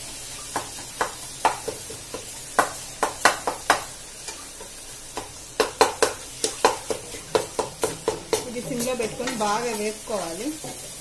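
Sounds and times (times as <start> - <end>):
food sizzling in oil: 0.0 - 11.0
wooden spatula scraping a pot: 6.4 - 11.0.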